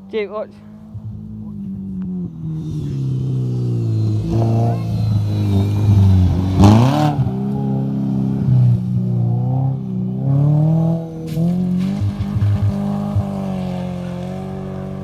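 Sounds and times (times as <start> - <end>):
car engine revving: 0.4 - 15.0
tyres on gravel: 11.2 - 15.0.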